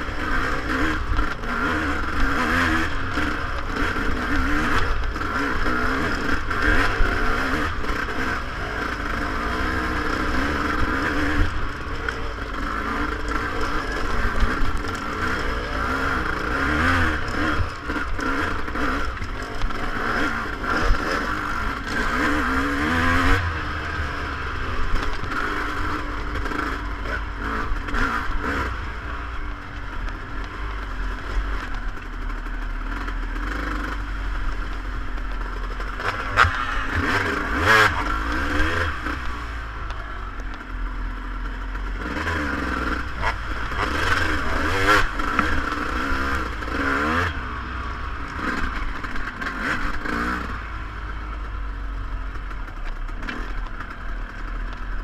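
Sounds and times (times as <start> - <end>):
bike rattling over stony track: 0.0 - 23.4, 41.5 - 50.4
motorcycle engine revving: 0.0 - 55.0.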